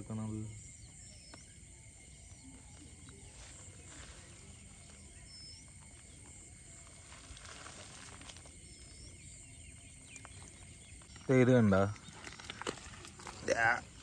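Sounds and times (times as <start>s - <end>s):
cast net rustling and clicking: 11.9s - 14.0s.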